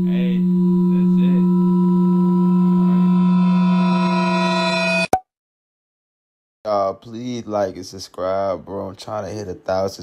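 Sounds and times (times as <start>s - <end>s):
low electronic tone: 0.0s - 5.1s.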